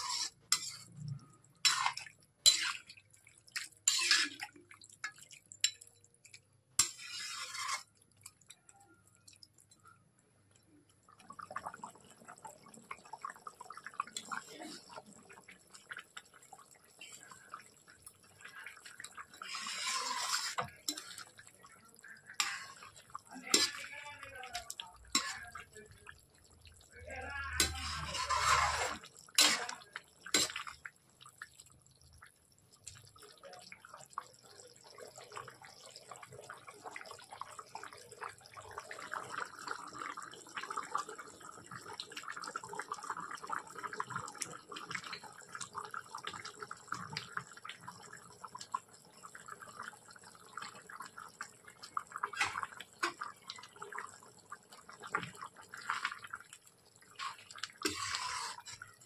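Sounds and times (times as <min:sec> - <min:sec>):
curry bubbling and popping: 0:00.0 - 0:59.0.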